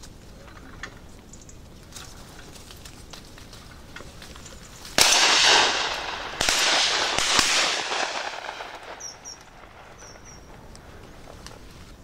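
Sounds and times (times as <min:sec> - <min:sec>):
shotgun shots echoing: 0:05.0 - 0:10.5.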